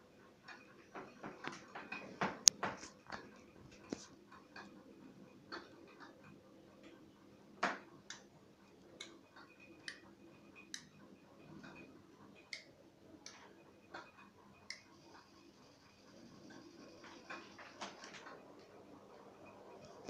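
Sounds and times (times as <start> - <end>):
train wheels clicking on rail joints: 9.1 - 20.0.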